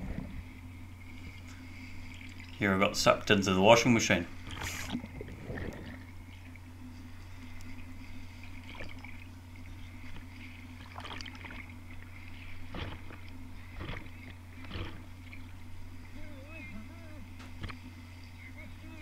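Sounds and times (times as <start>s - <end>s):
muffled underwater surge: 0.0s - 2.6s, 4.4s - 6.6s
steady low hum: 0.0s - 19.0s
bubbling crackles: 4.5s - 6.5s.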